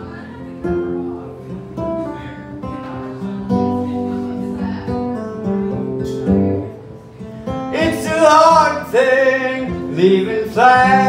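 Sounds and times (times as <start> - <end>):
acoustic guitar strummed chords: 0.0 - 11.0.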